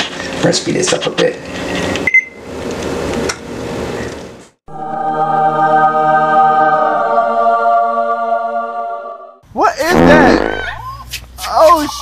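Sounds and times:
choir singing held chord: 4.7 - 9.4.

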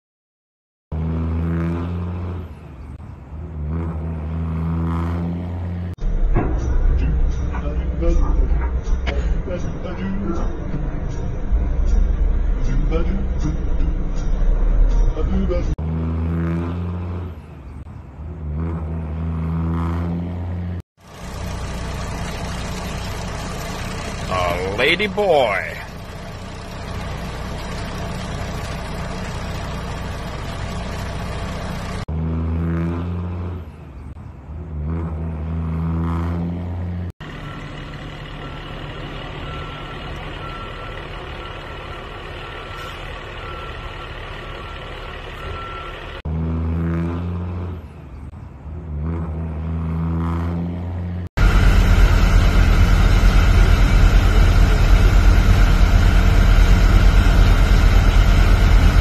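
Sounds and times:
heavy truck engine: 0.9 - 59.0
low engine rumble: 6.0 - 15.8, 21.0 - 32.1, 37.2 - 46.3, 51.3 - 59.0
reversing beeper: 37.2 - 46.2.

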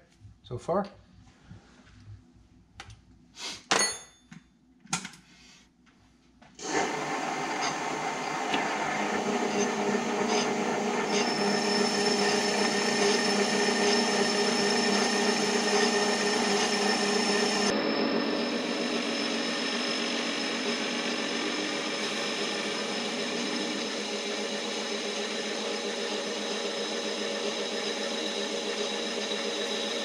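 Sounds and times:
metal lathe running: 6.6 - 30.0.

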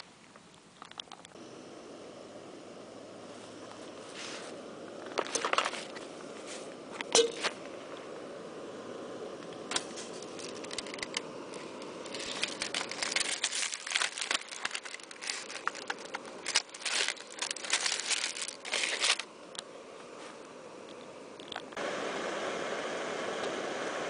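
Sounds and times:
aluminium foil crinkling: 4.9 - 6.2, 9.7 - 19.3.

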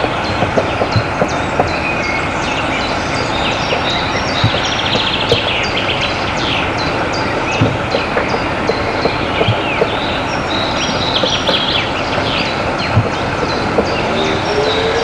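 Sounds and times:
small birds chirping: 0.0 - 15.0
steam locomotive hissing: 0.0 - 15.0
light knocks: 7.4 - 14.2.

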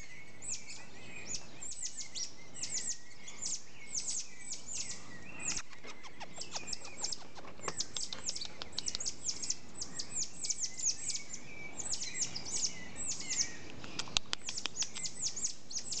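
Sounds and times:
tamarins chirping: 0.0 - 16.0.

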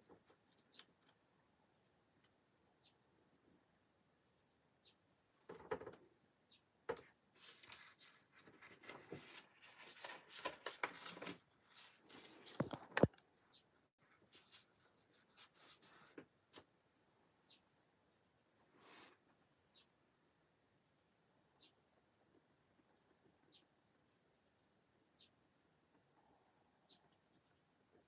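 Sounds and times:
paper rustling: 7.4 - 13.1.

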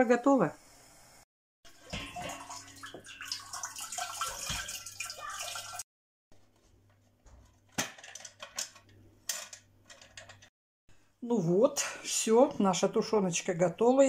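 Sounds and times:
water streaming and dripping: 1.7 - 5.8.

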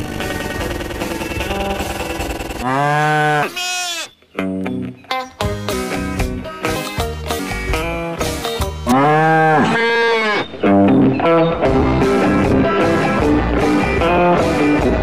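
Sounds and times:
cartoon cow mooing: 2.6 - 4.1, 8.8 - 10.5
children's song with guitar: 4.4 - 8.9, 10.5 - 15.0.

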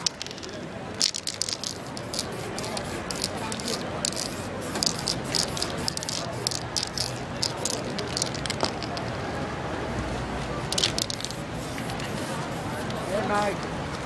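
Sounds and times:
street traffic noise: 0.0 - 14.0
spray-paint cans hissing: 1.0 - 9.1, 10.7 - 13.4.

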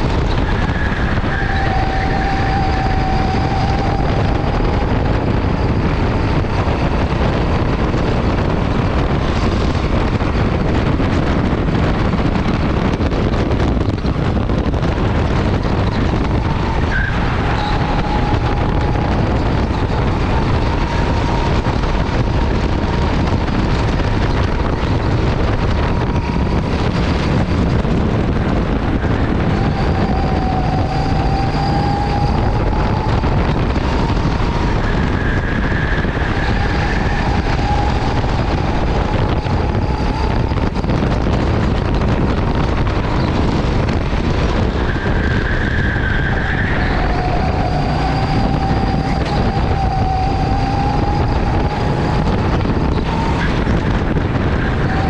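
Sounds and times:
go-kart engine whine: 0.0 - 55.0
wind noise on microphone: 0.0 - 55.0.

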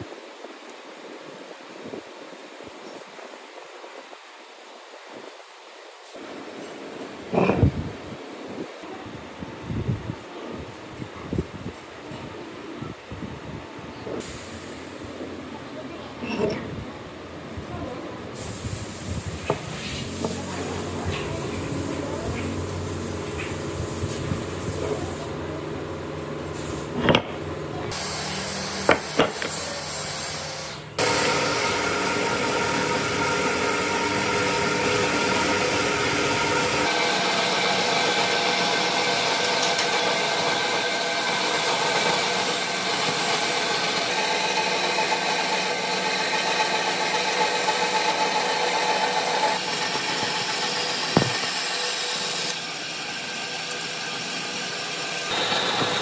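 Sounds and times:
band saw cutting wood: 27.9 - 56.0
wood block knocks and clicks: 51.1 - 51.4.

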